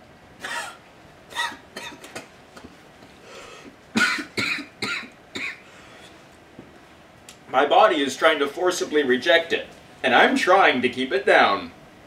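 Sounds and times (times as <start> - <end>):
man coughing hard: 0.4 - 2.3, 3.9 - 5.6.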